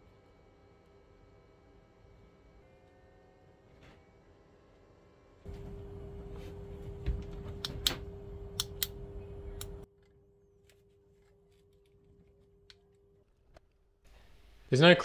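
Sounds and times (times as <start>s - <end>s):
steady low hum: 0.0s - 14.7s
power switch clicks: 7.6s - 9.8s.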